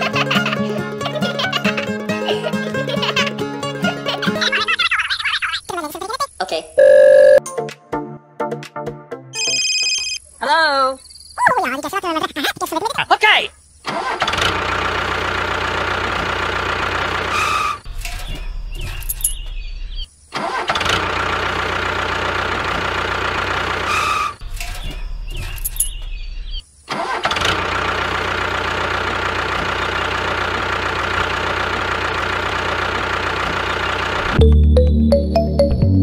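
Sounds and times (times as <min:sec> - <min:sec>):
tractor engine running: 0:13.9 - 0:34.6.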